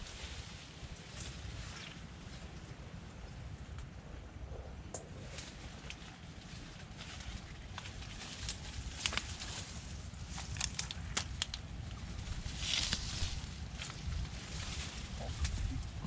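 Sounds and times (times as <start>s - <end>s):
leaves rustling: 0.0s - 3.4s, 5.1s - 16.0s
steady low rumble: 0.0s - 16.0s
twigs crackling and snapping: 7.6s - 15.6s.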